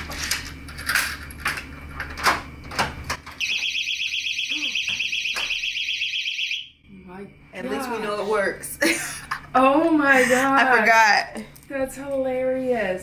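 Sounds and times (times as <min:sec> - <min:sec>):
warbling electronic alarm beep: 0:03.4 - 0:06.7.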